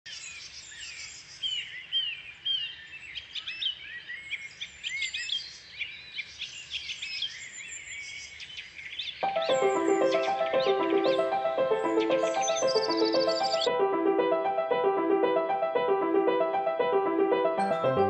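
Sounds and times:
songbirds singing: 0.1 - 13.7.

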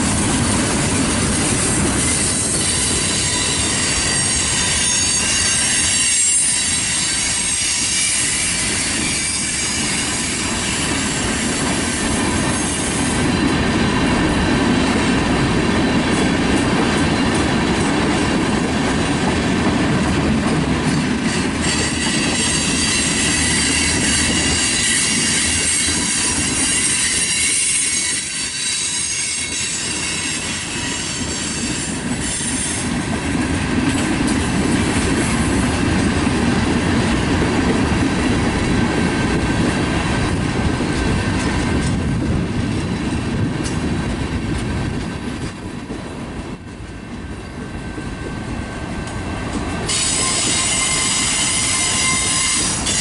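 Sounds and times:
freight train wheels rumbling on rails: 0.0 - 53.0
high wheel squeal: 1.6 - 11.9, 21.4 - 32.9, 49.9 - 53.0.

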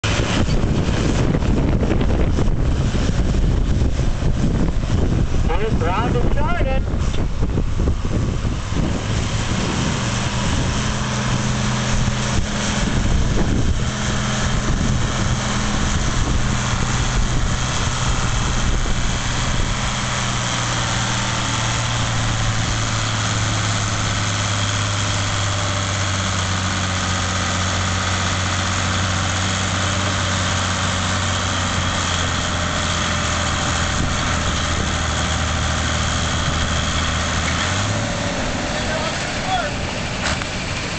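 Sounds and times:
tractor engine under heavy load: 0.0 - 40.9.

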